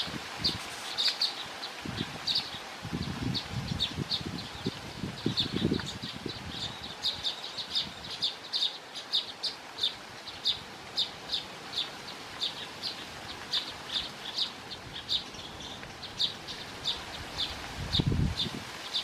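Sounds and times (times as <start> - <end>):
bird chirping: 3.3 - 17.6.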